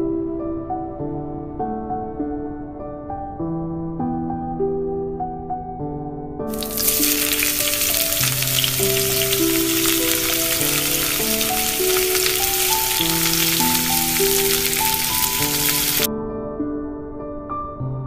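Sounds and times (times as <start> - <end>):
dough roll sizzling on griddle: 6.5 - 16.1.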